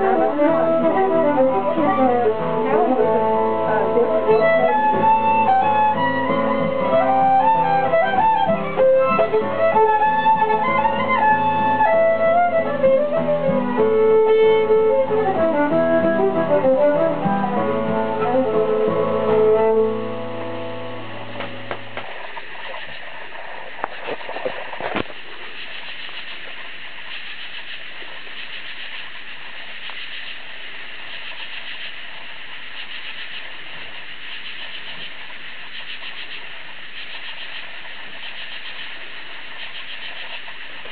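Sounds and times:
frogs calling: 20.9s - 40.9s
katydids calling: 21.7s - 40.9s.

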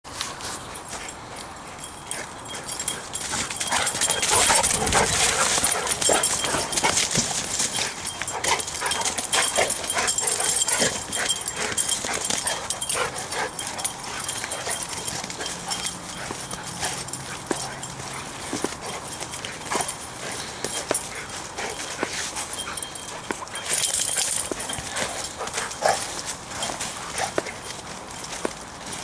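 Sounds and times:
paws scuffling in dry leaves: 0.1s - 29.0s
dogs vocalizing: 1.0s - 28.2s.

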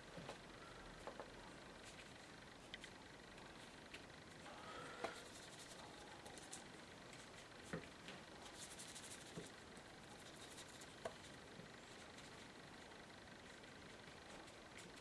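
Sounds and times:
paintbrush scrubbing in palette: 5.2s - 7.5s, 8.4s - 9.6s, 10.2s - 12.6s.

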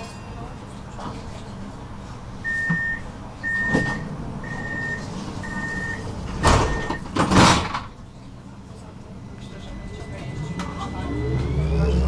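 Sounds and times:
tram low rumble: 0.0s - 12.0s
tram door warning beeps: 2.4s - 7.2s, 9.1s - 12.0s.

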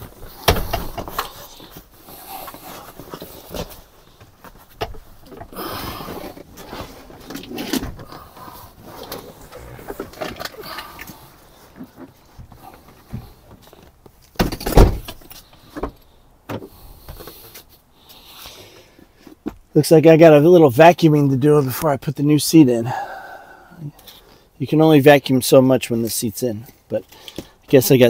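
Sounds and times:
rustling and scraping: 0.0s - 19.7s.

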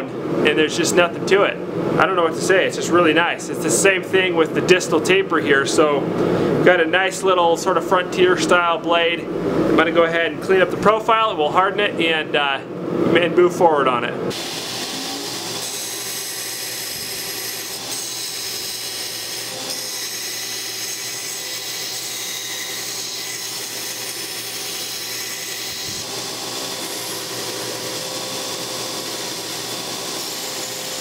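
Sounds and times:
belt grinder grinding steel blade: 14.3s - 31.0s.

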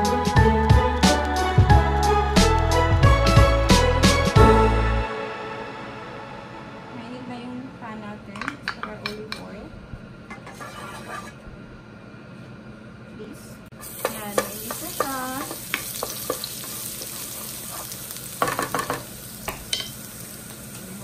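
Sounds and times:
wooden spoon scraping a pan: 10.3s - 11.4s, 13.8s - 18.1s
garlic sizzling in oil: 13.7s - 21.0s.

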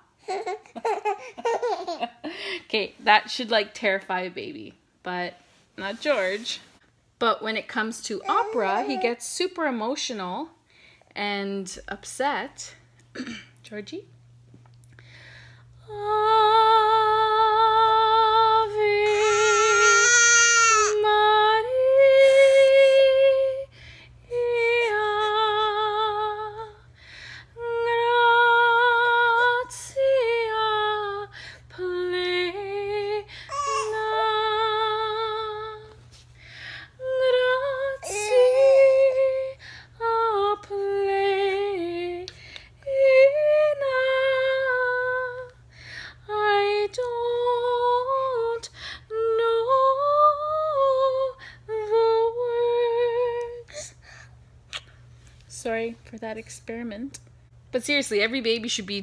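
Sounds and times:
woman singing opera: 15.8s - 23.7s, 24.3s - 26.8s, 27.6s - 36.0s, 37.0s - 45.6s, 46.3s - 53.6s.

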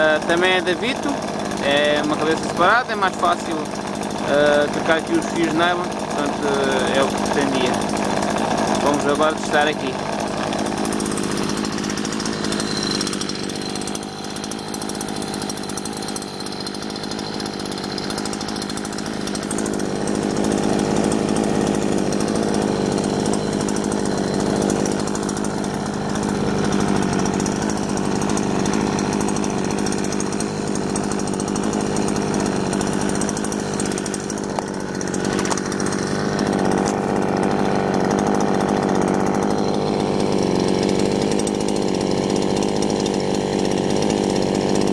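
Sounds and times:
brushcutter running at high revs: 0.0s - 44.9s.

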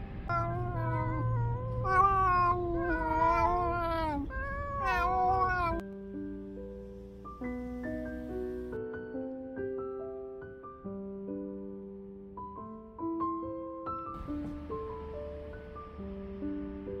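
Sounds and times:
gentle piano music: 0.0s - 17.0s
cat meowing: 0.3s - 5.8s.

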